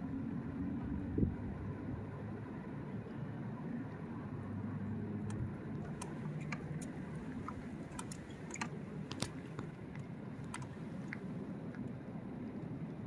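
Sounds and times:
light sharp clicks and taps: 5.2 - 12.0.

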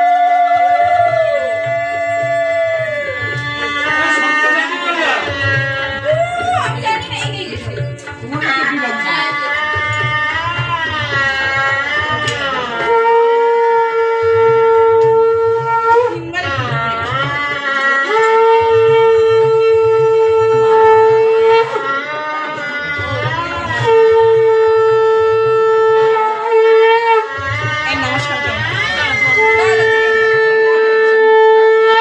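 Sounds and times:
hand-drum rhythm: 0.0 - 32.0
double-reed horn long notes: 12.3 - 16.1, 17.7 - 32.0.

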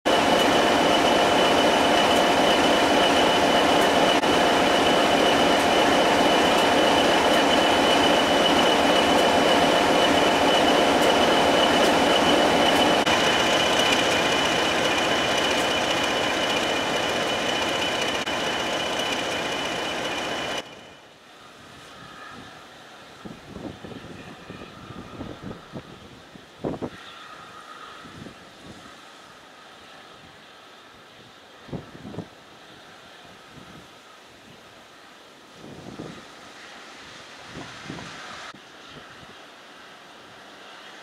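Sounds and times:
steady high whistle: 0.1 - 20.9
diesel locomotive engine running: 0.1 - 21.2.

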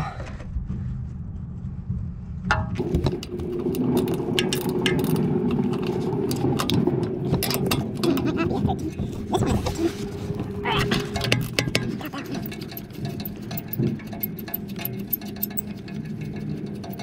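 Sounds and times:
steady low hum: 0.0 - 17.0
ratcheting wrench clicking: 3.1 - 8.2, 10.9 - 17.0
metal ticks and taps: 10.8 - 17.0.

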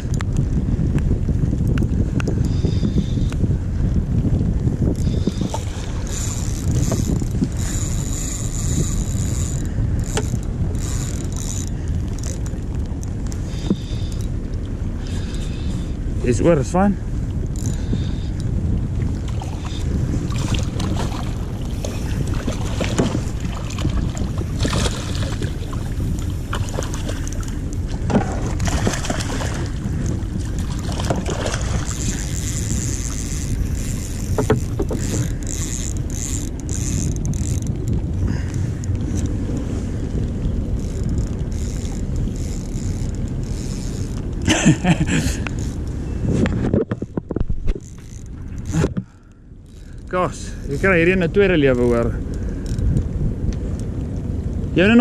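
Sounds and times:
wind rumbling on microphone: 0.0 - 55.0
knocks and clicks: 34.1 - 37.8.

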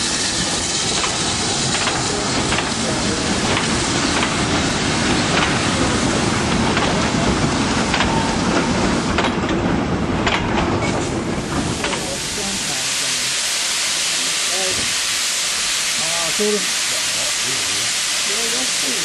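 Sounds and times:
wheels clacking over rail joints: 0.0 - 12.3
goods train rumbling past: 0.0 - 19.0.

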